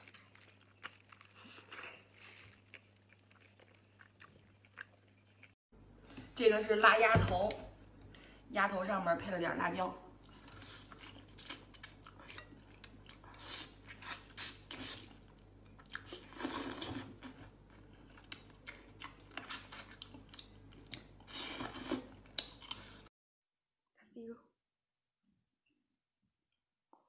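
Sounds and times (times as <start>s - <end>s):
wet chewing and smacking: 0.0s - 5.6s.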